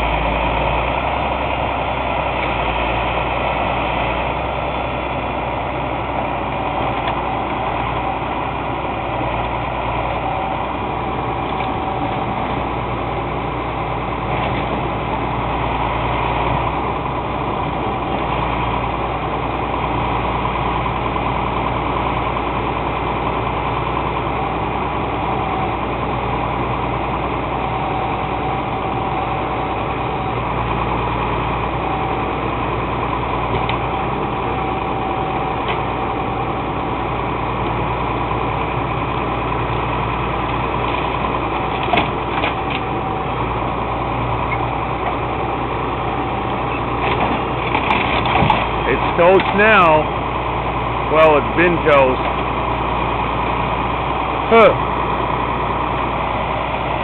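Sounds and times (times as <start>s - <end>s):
truck engine running: 0.0s - 57.0s.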